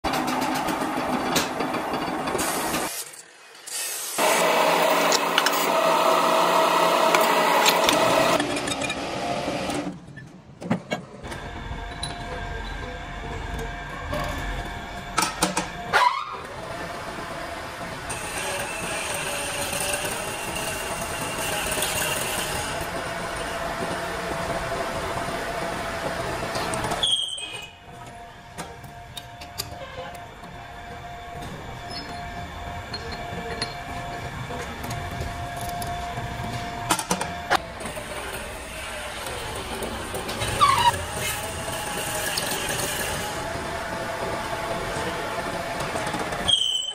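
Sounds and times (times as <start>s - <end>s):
workshop machinery hum: 0.0s - 46.9s
metal lathe running: 4.2s - 8.5s, 11.4s - 46.9s.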